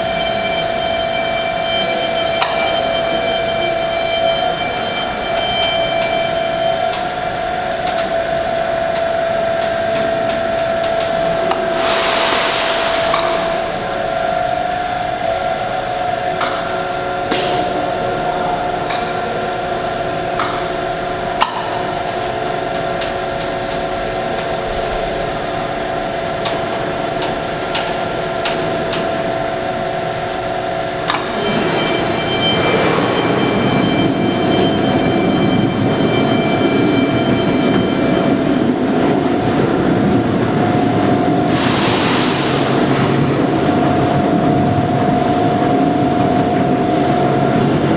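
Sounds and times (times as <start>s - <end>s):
burst of hissing: 11.8s - 13.1s.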